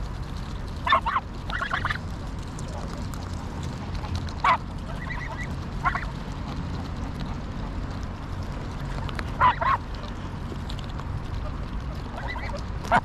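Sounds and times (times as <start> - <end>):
steady low rumble: 0.0 - 13.0
geese honking: 0.8 - 2.0, 4.4 - 6.2, 8.8 - 10.3, 11.4 - 13.0.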